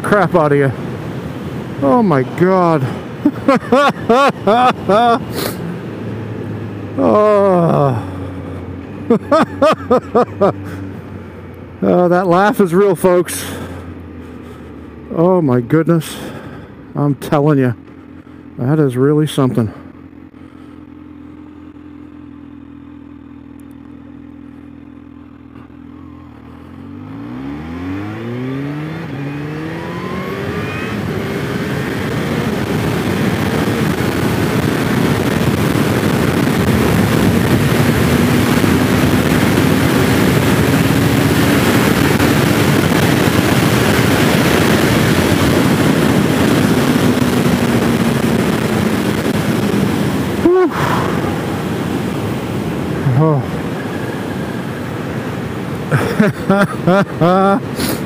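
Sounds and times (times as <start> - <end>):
motorcycle engine accelerating: 0.0 - 58.0
wind noise on microphone: 30.9 - 52.9.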